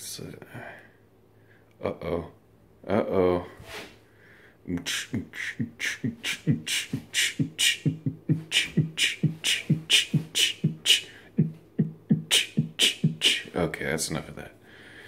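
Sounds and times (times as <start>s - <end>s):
man beatboxing: 4.7s - 13.8s.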